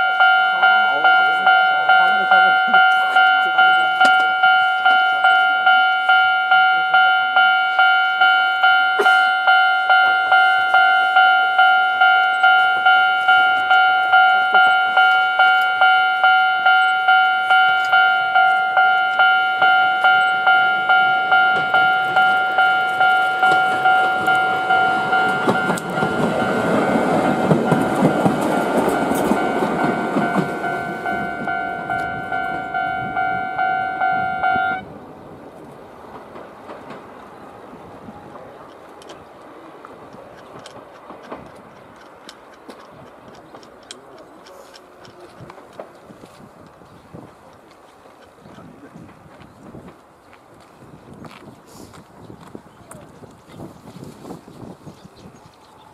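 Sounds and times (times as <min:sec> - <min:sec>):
level-crossing alarm dinging: 0:00.0 - 0:34.9
train wheels rumbling over rails: 0:12.0 - 0:55.9.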